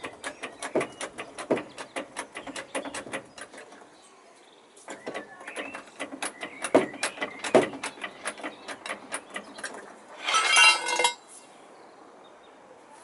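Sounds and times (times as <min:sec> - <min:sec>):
loud knocks: 0:00.0 - 0:03.4, 0:04.9 - 0:09.7
jack handle metallic clicks and clanks: 0:00.0 - 0:03.8, 0:04.9 - 0:11.2.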